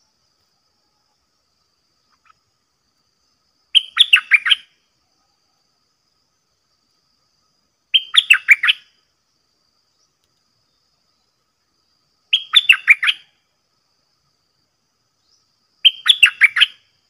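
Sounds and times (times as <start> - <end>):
bulbul singing: 3.7 - 4.7, 7.9 - 8.9, 12.3 - 13.3, 15.2 - 16.9.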